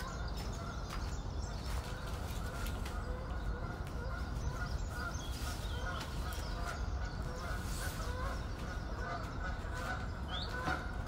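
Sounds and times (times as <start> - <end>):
ducks calling: 0.0 - 11.0
songbird chirps: 0.0 - 11.0
geese honking: 3.5 - 11.0.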